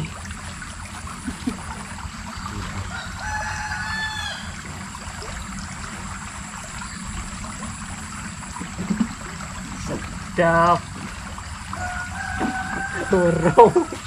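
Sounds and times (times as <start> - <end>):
running water hiss: 0.0 - 14.0
rooster crowing: 2.6 - 4.7, 11.7 - 14.0.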